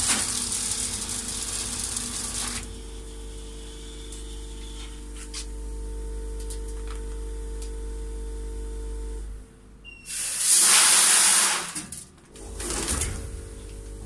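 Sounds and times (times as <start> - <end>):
packing machine humming: 0.0 - 7.7.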